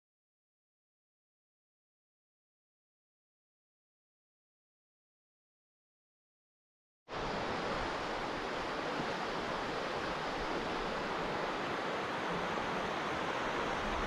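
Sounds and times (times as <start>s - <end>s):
river rushing over rocks: 7.1s - 14.0s.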